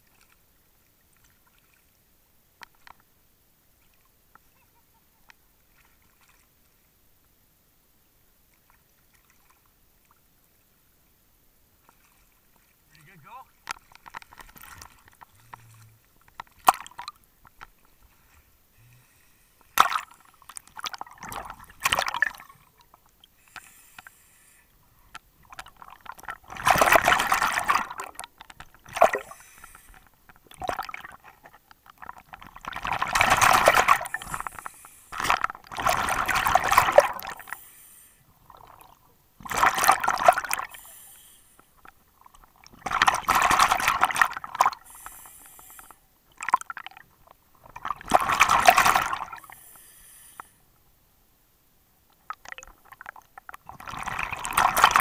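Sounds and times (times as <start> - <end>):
water sloshing and gurgling: 11.7 - 50.4, 52.1 - 55.0
underwater breath bubbles: 14.6 - 17.3, 18.1 - 31.3, 32.0 - 42.0, 42.7 - 47.0, 47.6 - 50.6, 52.3 - 55.0.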